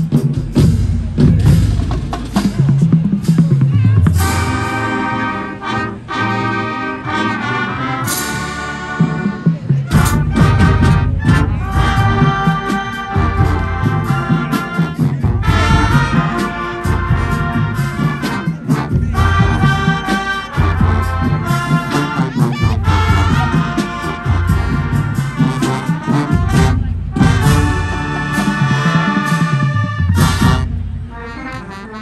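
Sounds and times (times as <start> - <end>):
brass band playing chords: 0.0 - 32.0.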